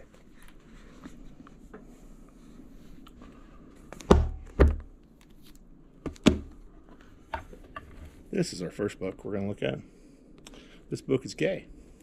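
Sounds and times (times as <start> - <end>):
books thudding on table: 4.0 - 4.9.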